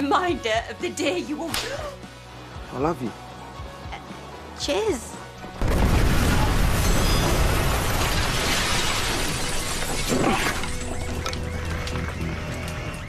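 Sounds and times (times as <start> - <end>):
explosion rumble: 5.6 - 9.3
debris crashing: 5.6 - 12.2
glass shattering: 5.8 - 11.4.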